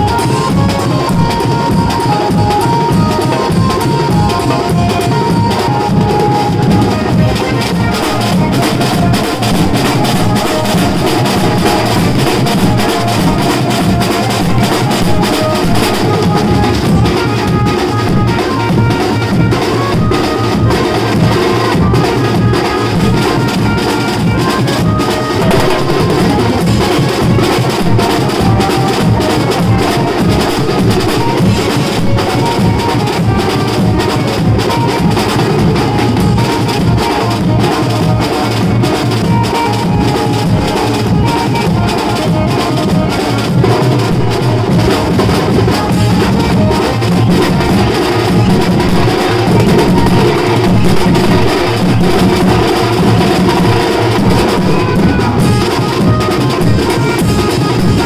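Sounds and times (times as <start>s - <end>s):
snare drum: 0.0s - 58.0s
timbale drums beaten with sticks: 0.0s - 58.0s
cymbal: 6.9s - 39.0s
melody line: 24.6s - 37.0s.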